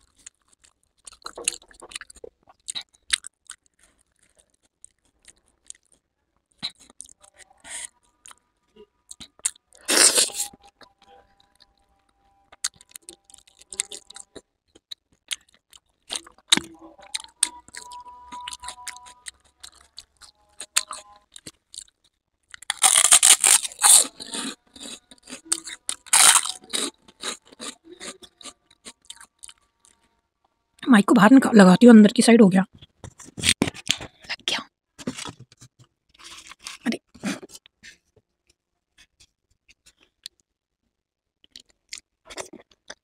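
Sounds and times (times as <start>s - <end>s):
crisp food crunches: 19.6s - 30.0s.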